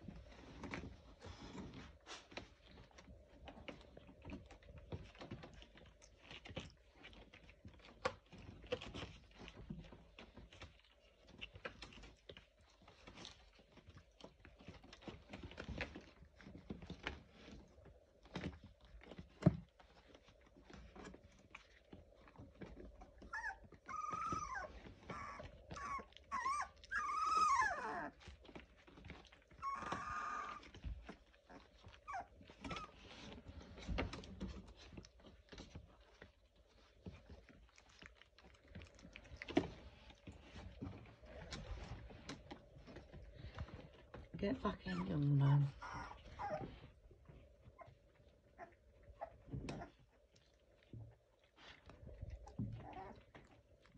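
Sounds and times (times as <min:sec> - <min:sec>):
puppies scuffling and pawing: 0:00.0 - 0:53.9
puppy whining: 0:00.0 - 0:53.9.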